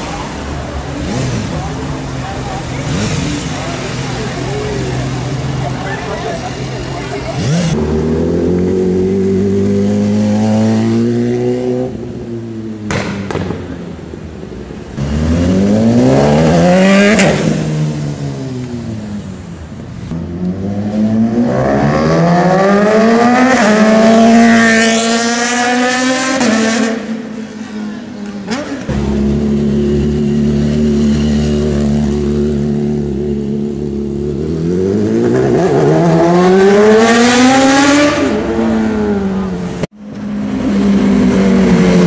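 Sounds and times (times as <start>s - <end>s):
motorcycle engines accelerating: 0.0s - 42.0s
motorcycle passing close: 7.1s - 12.1s, 28.4s - 42.0s.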